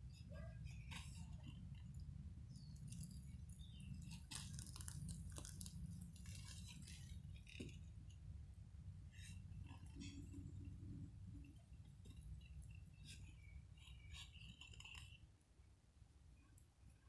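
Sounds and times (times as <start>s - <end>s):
charcoal fire crackling: 2.6s - 7.9s.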